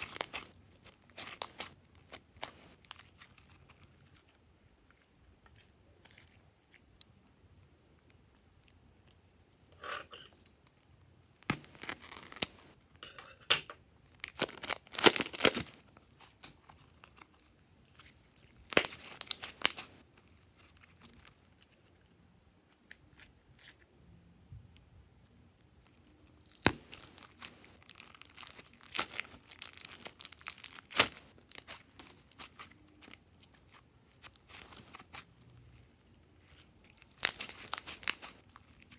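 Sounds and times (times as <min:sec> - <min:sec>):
hands squishing slime: 0:00.0 - 0:07.0, 0:26.4 - 0:35.8, 0:36.4 - 0:38.9.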